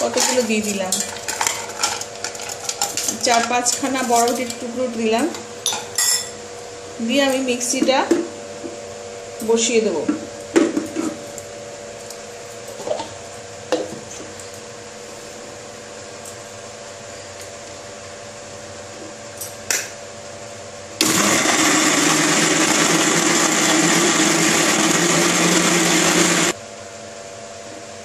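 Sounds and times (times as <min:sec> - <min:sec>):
mixer grinder running: 0:21.0 - 0:26.6.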